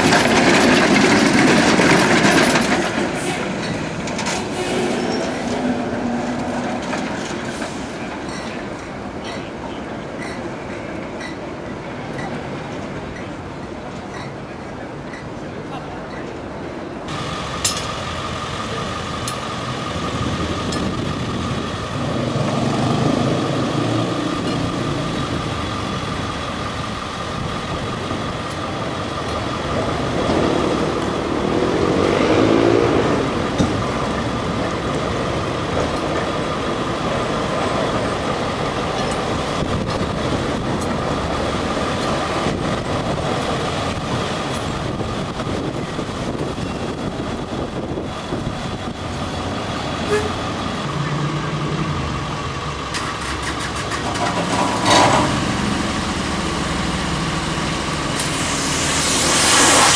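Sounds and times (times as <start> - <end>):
vehicles passing: 17.1 - 59.9
steady whine: 55.2 - 59.9.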